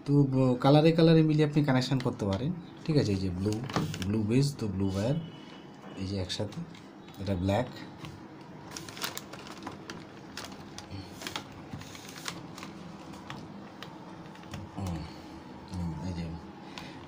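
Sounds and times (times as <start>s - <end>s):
hands handling plastic connectors: 7.9s - 15.0s.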